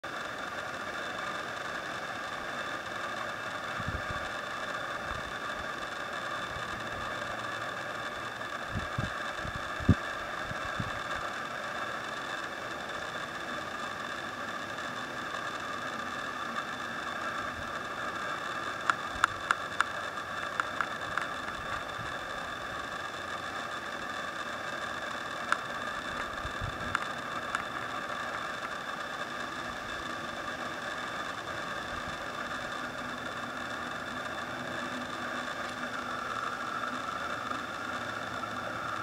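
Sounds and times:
outdoor background hum: 0.0 - 39.0
sharp clicks: 16.5 - 22.5, 24.9 - 28.8.

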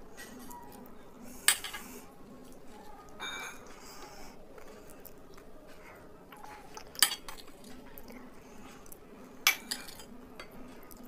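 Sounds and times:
eating and mouth sounds: 0.4 - 9.2, 10.5 - 11.0
tableware clink: 1.5 - 1.9, 3.2 - 3.8, 7.0 - 7.4, 9.5 - 10.6.

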